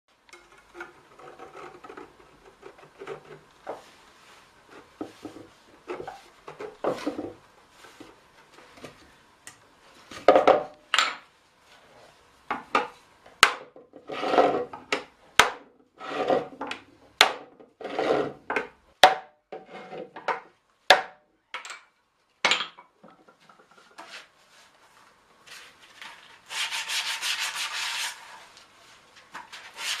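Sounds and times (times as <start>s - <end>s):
steady scraping: 14.0s - 14.7s.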